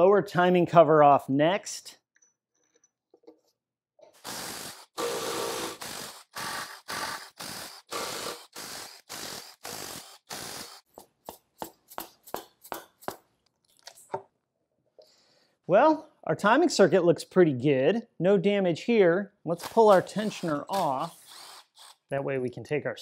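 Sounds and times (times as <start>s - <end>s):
electric ratchet whirring: 4.1s - 10.9s, 19.6s - 22.1s.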